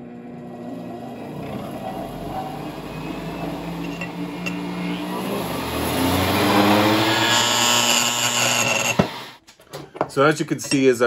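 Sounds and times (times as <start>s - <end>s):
electrical mains hum: 0.0s - 11.0s
steel bar clacking and buzzing: 0.4s - 9.4s.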